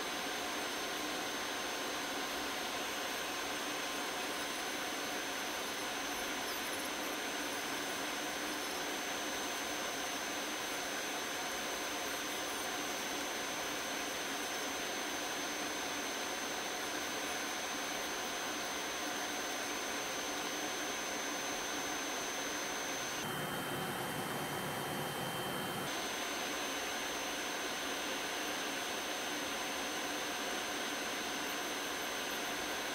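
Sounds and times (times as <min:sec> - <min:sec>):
electric nail drill whining: 0:13.0 - 0:32.9.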